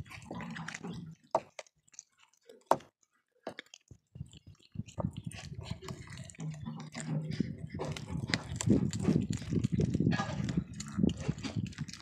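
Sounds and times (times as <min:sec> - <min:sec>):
bones crunching: 0:00.0 - 0:12.0
cats gnawing bones: 0:00.0 - 0:12.0
loud bone cracks: 0:05.8 - 0:12.0.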